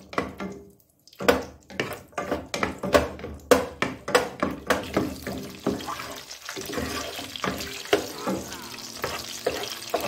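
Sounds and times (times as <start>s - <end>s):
wooden spatula scraping a pot: 1.7s - 3.2s, 4.9s - 10.0s.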